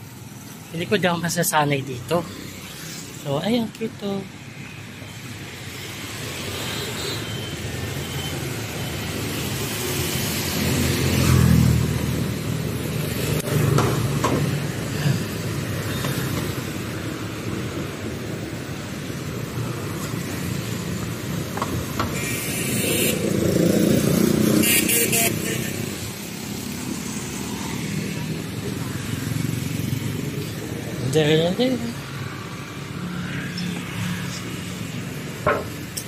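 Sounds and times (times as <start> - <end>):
motorbikes driving past: 9.4 - 17.0, 23.1 - 24.7, 25.6 - 36.0.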